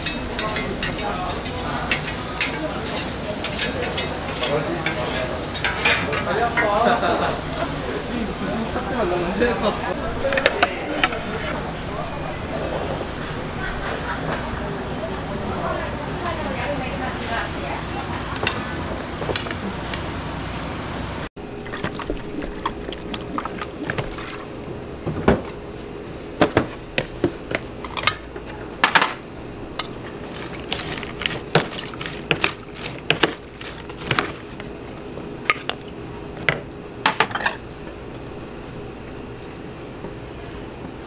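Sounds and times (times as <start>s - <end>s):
liquid pouring: 21.4s - 24.6s.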